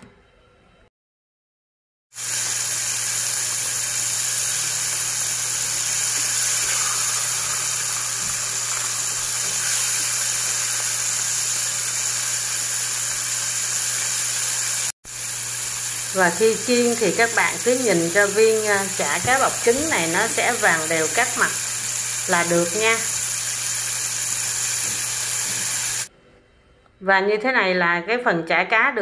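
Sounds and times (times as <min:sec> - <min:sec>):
deep-frying sizzle: 0:02.1 - 0:26.1.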